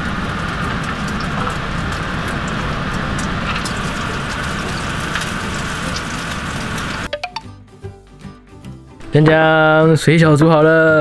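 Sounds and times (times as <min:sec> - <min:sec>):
water boiling with bubbling pops: 0:00.0 - 0:07.1.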